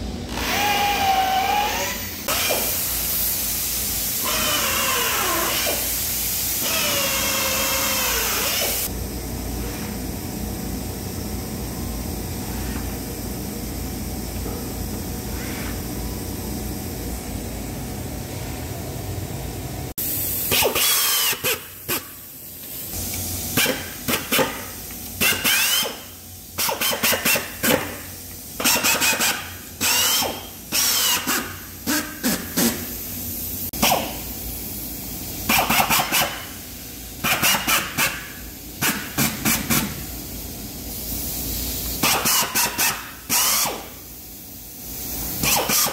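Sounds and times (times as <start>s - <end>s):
steady machine hum: 0.0s - 45.5s
pneumatic drill driving screws: 0.3s - 2.8s, 4.2s - 5.9s, 6.6s - 8.9s, 20.5s - 21.7s, 25.2s - 27.9s, 28.6s - 32.8s, 42.0s - 43.9s, 45.4s - 45.9s
air hiss: 2.2s - 8.9s, 20.0s - 34.7s.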